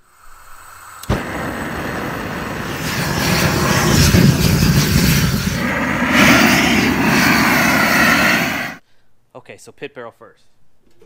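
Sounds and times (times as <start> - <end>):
propane torch flame rushing: 1.0 - 8.8.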